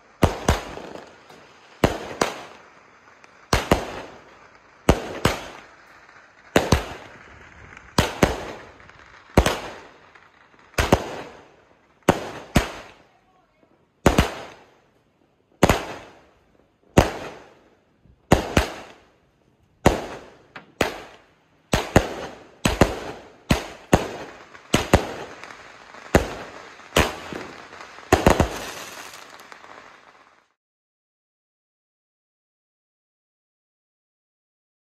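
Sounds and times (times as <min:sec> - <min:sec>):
firework bangs with echo: 0:00.0 - 0:13.0, 0:14.0 - 0:14.7, 0:16.9 - 0:17.6, 0:18.3 - 0:19.1, 0:19.8 - 0:30.2.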